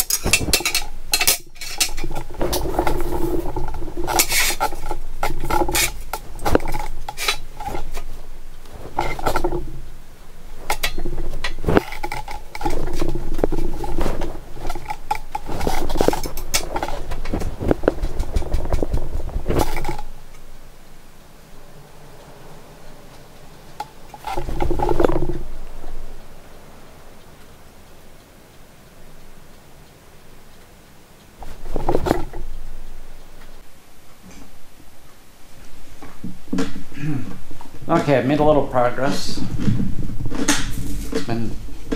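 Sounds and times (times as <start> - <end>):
metal clanking on steel table: 0.0 - 7.9
low hum: 0.0 - 38.0.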